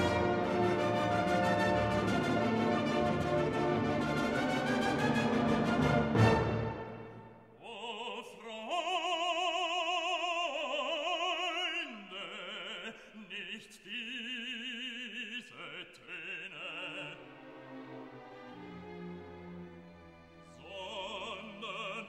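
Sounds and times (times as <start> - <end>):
operatic voice singing: 7.6 - 17.5, 20.5 - 22.0.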